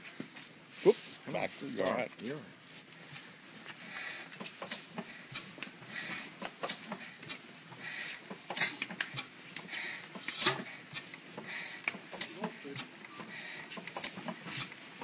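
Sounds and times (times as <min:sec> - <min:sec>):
hissing puff of air: 0:03.8 - 0:14.7.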